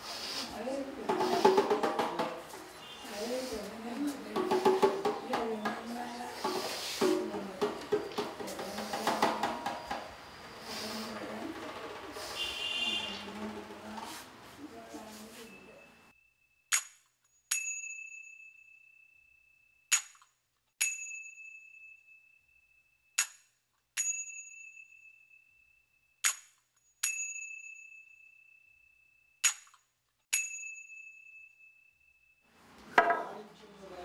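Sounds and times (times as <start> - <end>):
small metal percussion ringing: 17.5 - 19.2, 30.3 - 32.4.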